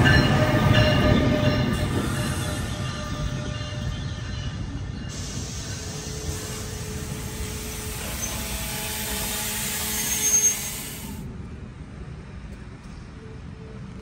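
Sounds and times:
train rolling and braking: 0.0 - 14.0
high brake squeal: 5.1 - 11.2.

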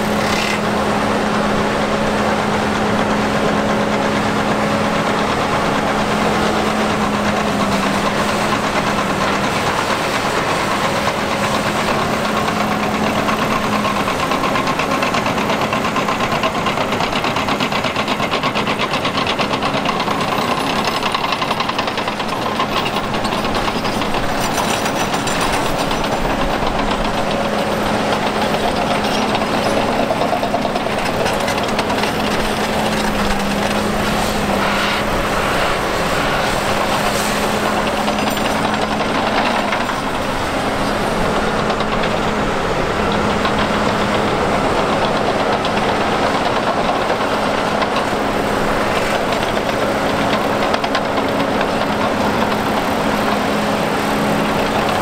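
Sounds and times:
diesel excavator engine hum: 0.0 - 55.0.

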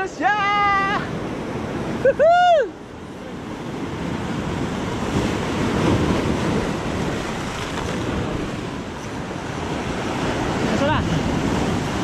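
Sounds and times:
wind buffeting microphone: 3.0 - 12.0
surf breaking on rocks: 3.3 - 12.0.

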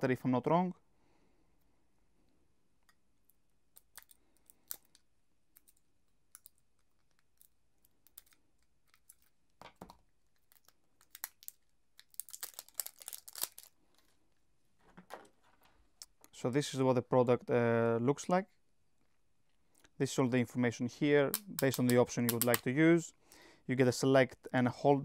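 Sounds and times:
plastic tearing: 7.0 - 14.1
plastic packaging crinkling: 7.0 - 14.2.

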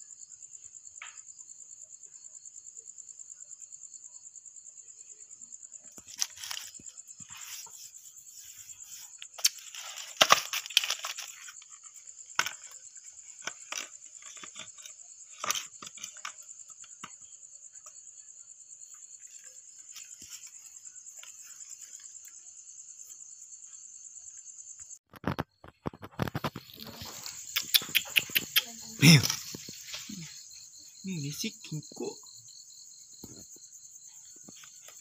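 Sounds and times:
night insects trilling: 0.0 - 35.0
crunching and rustling: 5.9 - 16.7.

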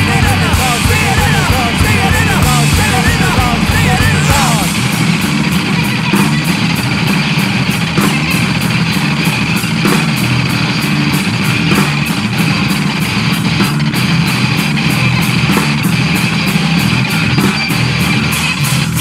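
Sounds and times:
person singing: 0.0 - 5.4
rock music with electric guitar: 0.0 - 19.0.

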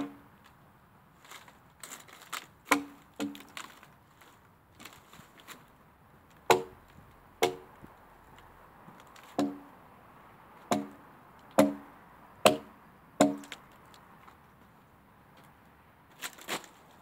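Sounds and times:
axe chopping into log: 2.7 - 3.5, 6.5 - 6.8, 7.4 - 7.7, 9.3 - 9.7, 10.7 - 13.6.

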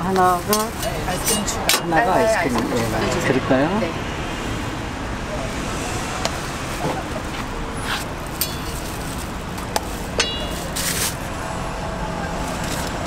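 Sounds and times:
steady street stall hum: 0.0 - 13.0
sharp clinks: 10.2 - 11.0.

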